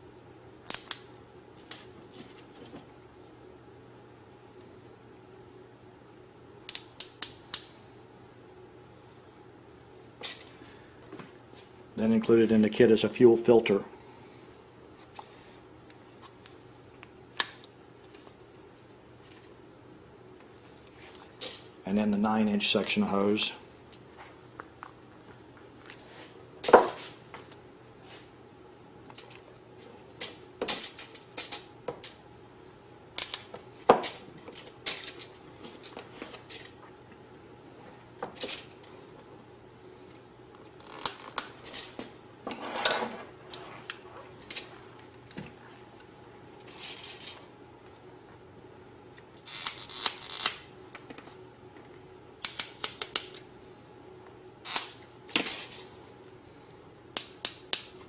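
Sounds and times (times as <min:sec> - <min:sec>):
metal parts clicking and clinking: 0:34.0 - 0:35.3.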